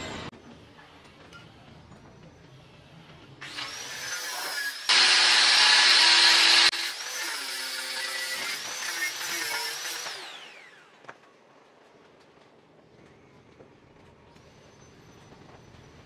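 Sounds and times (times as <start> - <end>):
electric power tool whirring: 3.4 - 11.0.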